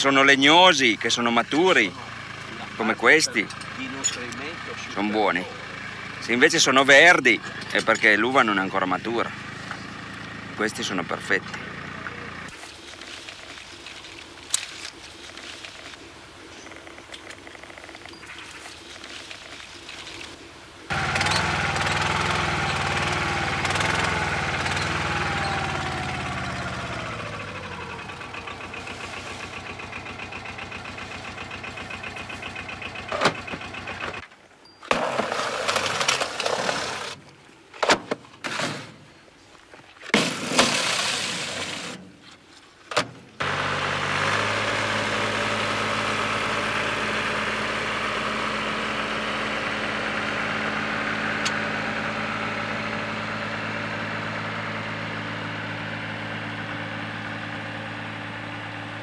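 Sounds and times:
vehicle engine running: 0.0s - 14.3s, 20.9s - 34.3s, 43.4s - 59.0s.

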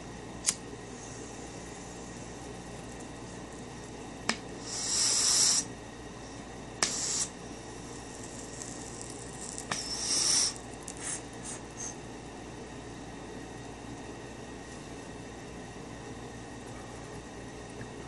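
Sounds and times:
torch lighter clicking: 0.4s - 0.6s
lighter flame hissing: 0.4s - 1.9s, 4.3s - 5.8s, 6.8s - 11.9s.

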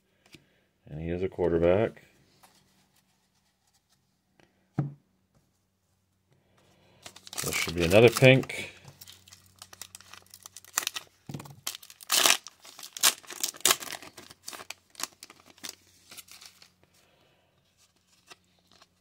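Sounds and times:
foil wrapper tearing and crinkling: 7.0s - 16.8s.

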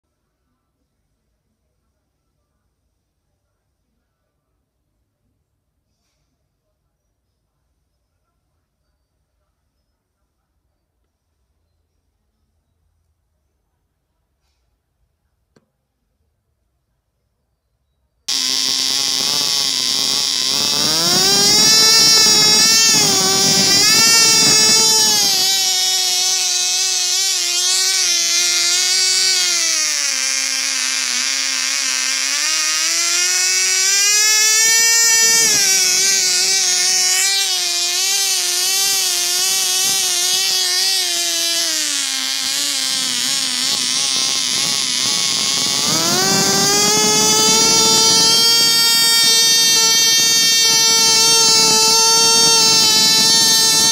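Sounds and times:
model engine high-pitched whine: 18.3s - 53.9s.

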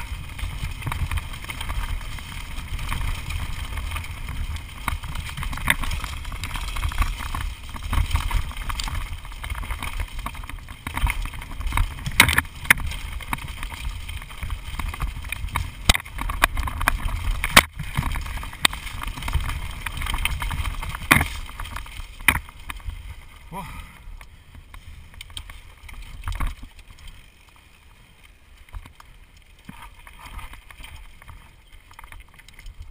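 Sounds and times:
bike knocking over bumps: 0.0s - 22.9s
wind rumble on microphone: 0.0s - 27.2s
mountain bike rattling: 0.0s - 32.9s.

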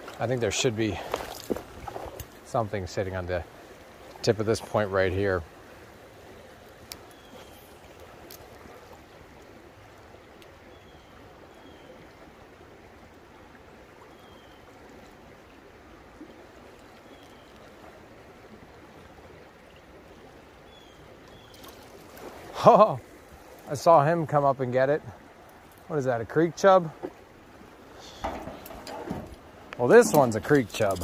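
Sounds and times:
creek water running over rocks: 0.0s - 31.0s.

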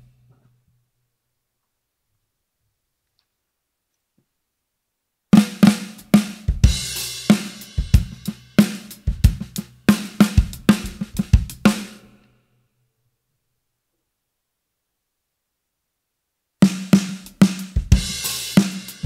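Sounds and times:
low muffled snare drum: 5.4s - 12.0s, 16.6s - 19.0s
drum kit groove: 5.4s - 12.1s, 16.6s - 19.0s.

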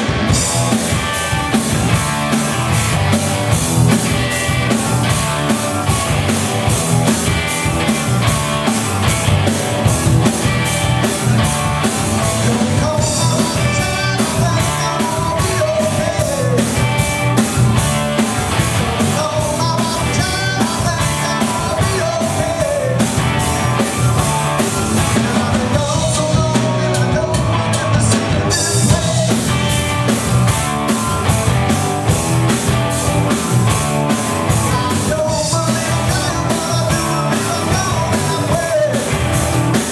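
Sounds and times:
live rock band playing: 0.0s - 39.9s
lead vocal singing: 12.3s - 16.9s, 19.0s - 29.8s, 34.6s - 39.2s.

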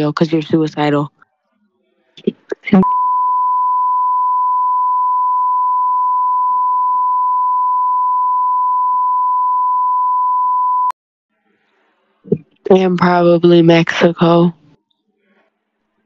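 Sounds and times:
censor bleep tone: 2.8s - 11.0s.

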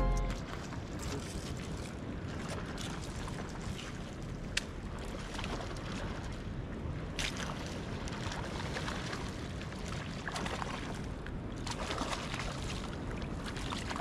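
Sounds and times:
water sloshing at shoreline: 0.0s - 14.0s
splashy water rushes: 7.2s - 14.0s.

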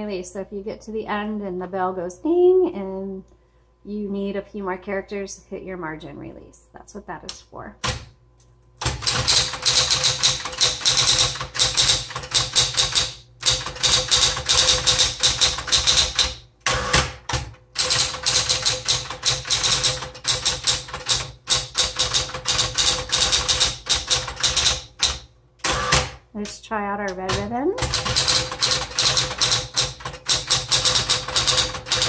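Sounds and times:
typewriter motor humming: 8.8s - 32.0s.

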